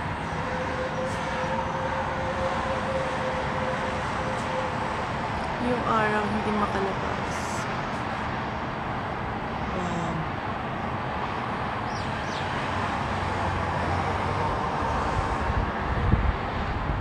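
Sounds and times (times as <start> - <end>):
highway traffic hiss: 0.0 - 17.0.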